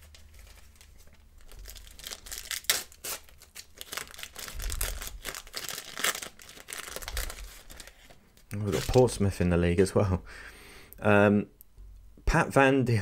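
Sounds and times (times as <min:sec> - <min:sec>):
wrapper crinkling and tearing: 0:00.0 - 0:09.2.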